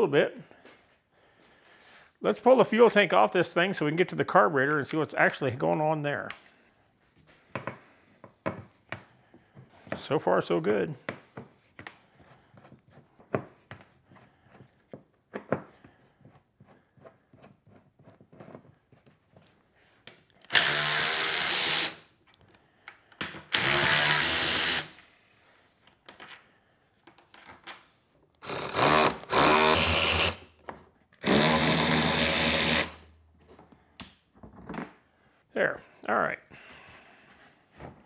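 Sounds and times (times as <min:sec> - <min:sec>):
electric ratchet spinning: 0:20.5 - 0:22.0, 0:23.5 - 0:25.0, 0:28.4 - 0:30.4, 0:31.2 - 0:33.0.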